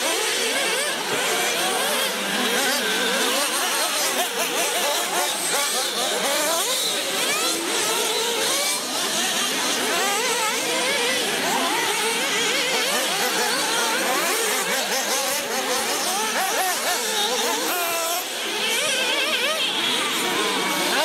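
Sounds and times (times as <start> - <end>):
small engines whining: 0.0 - 21.0.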